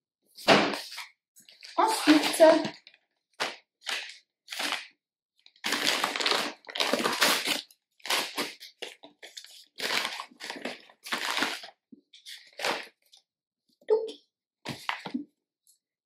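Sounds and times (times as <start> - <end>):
paper rustling and crinkling: 5.6 - 13.2.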